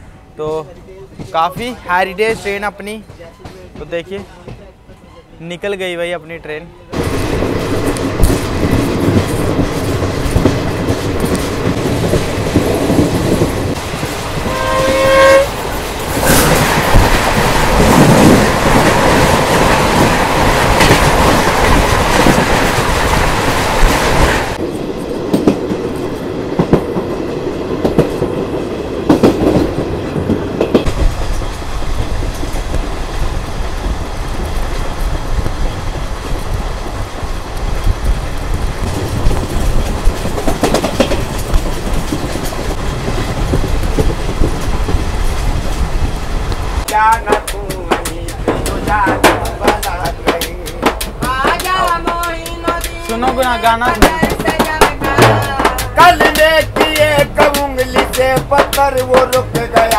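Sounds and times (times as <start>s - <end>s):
train passing on next track: 0.0s - 59.9s
train running and wheel clatter: 0.0s - 59.9s
train horn: 14.4s - 15.6s.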